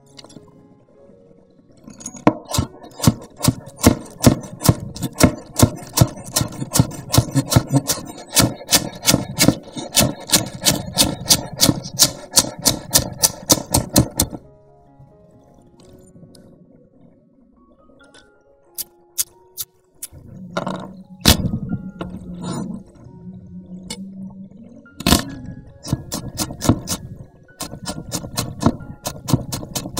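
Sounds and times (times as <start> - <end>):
knife chopping on wooden board: 2.5 - 14.4, 27.6 - 29.9.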